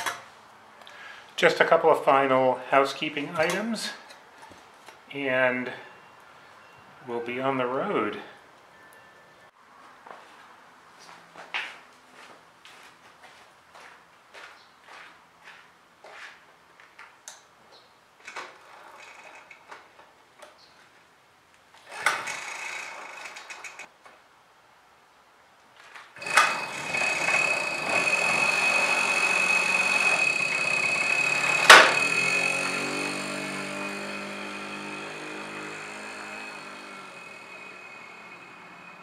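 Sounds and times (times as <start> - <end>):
footsteps: 9.8 - 17.0
moped engine buzzing: 21.9 - 23.9, 26.2 - 39.0.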